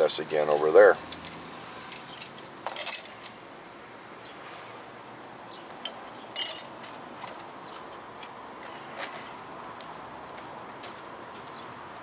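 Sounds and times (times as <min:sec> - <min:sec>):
metal tools clattering: 0:01.8 - 0:03.4, 0:05.8 - 0:07.4.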